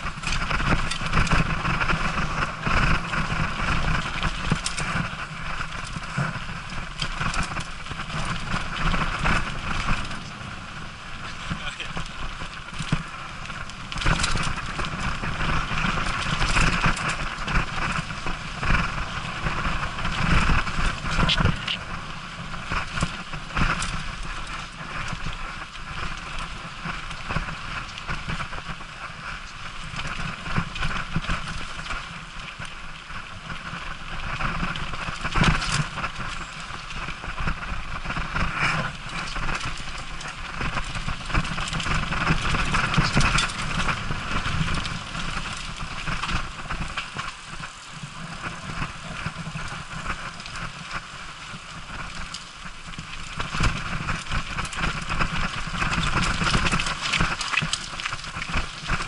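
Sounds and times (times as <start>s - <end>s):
bike rattling and knocking: 0.0s - 59.0s
tyres rolling over dirt: 0.0s - 59.0s
wind rumbling on microphone: 0.0s - 59.0s.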